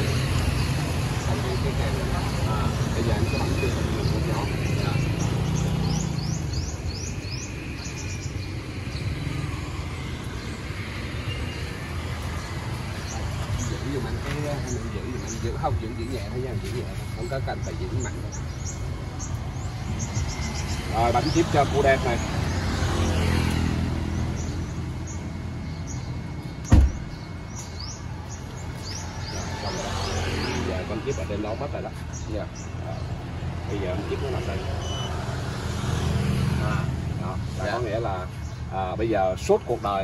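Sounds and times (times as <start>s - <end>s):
low rumble of traffic: 0.0s - 40.0s
loud thump: 26.7s - 27.2s.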